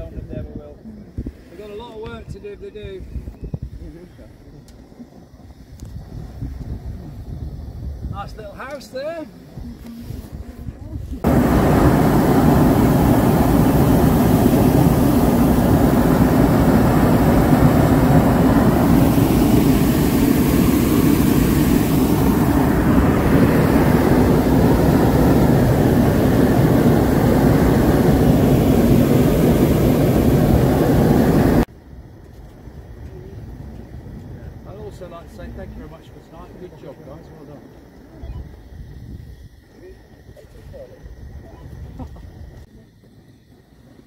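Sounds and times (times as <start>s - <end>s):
propane burner roaring: 10.9s - 32.1s.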